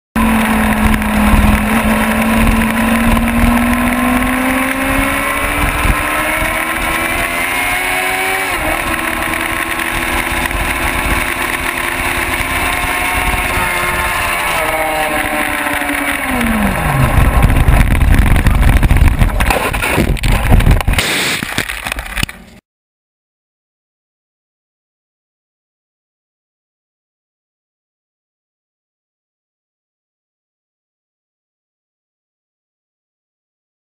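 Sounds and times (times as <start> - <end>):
race motorcycle engine revving: 0.2 - 21.4
motorcycle crash scraping: 13.2 - 22.6.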